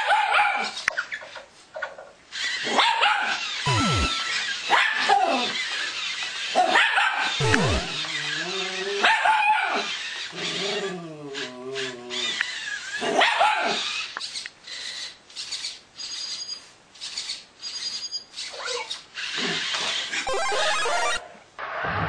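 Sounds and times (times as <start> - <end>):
short sharp sounds: 3.7 - 4.2, 7.4 - 8.0
faint high tones: 3.7 - 4.3, 7.4 - 8.0, 20.3 - 21.2.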